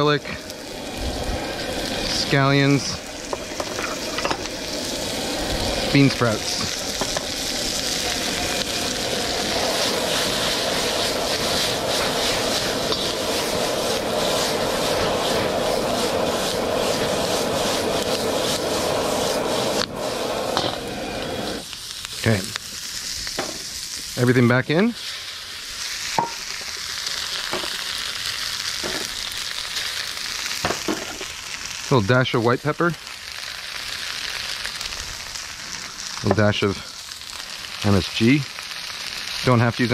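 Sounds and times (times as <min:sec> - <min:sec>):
surges of hiss: 0:00.0 - 0:39.9
vegetables sizzling in a wok: 0:00.0 - 0:39.9
wok burner jet roar: 0:00.0 - 0:39.9.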